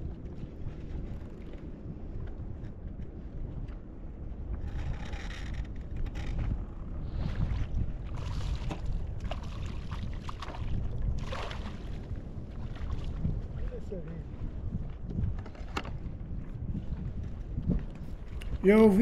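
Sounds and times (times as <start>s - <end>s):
wind rumbling on microphone: 0.0s - 19.0s
water splashing: 8.3s - 12.0s.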